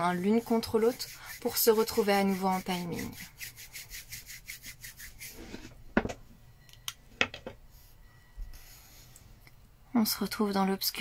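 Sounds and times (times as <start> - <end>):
palms rubbing together: 0.0 - 5.7.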